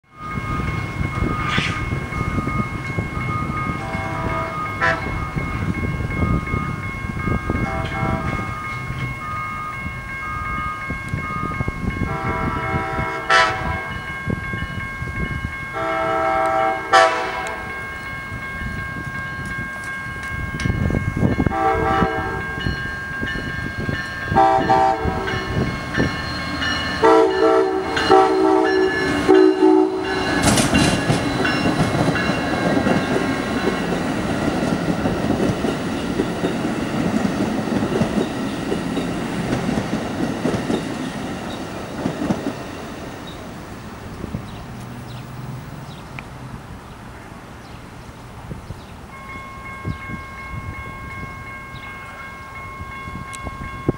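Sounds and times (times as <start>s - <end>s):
train cars rumbling and clacking: 0.0s - 53.9s
locomotive horn blasts: 3.8s - 5.3s, 7.6s - 8.6s, 12.0s - 14.0s, 15.7s - 17.8s, 21.4s - 22.7s, 24.3s - 25.6s, 27.0s - 30.3s.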